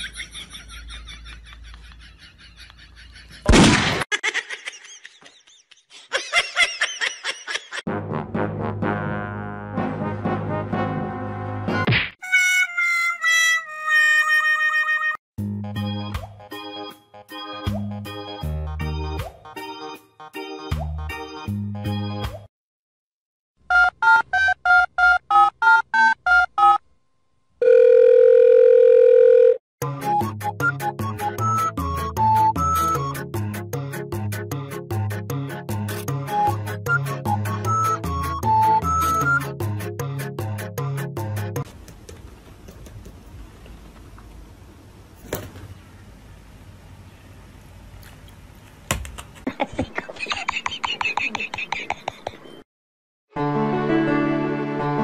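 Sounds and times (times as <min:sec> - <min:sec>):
gunshot: 0:03.5 - 0:04.1
high-pitched laughter: 0:04.1 - 0:07.8, 0:49.4 - 0:52.6.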